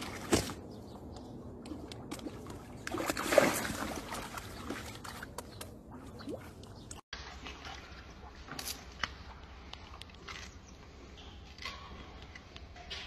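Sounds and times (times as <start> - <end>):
water lapping at rocky shore: 1.7 - 10.2.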